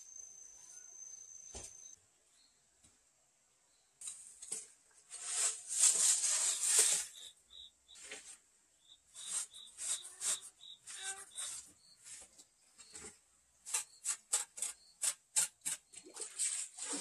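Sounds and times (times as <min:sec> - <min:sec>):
shovel scraping soil: 0:05.1 - 0:08.4, 0:09.1 - 0:17.0.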